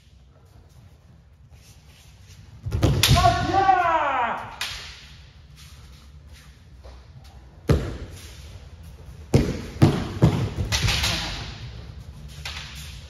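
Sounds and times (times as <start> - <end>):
stamping footwork thumps: 9.3 - 10.7.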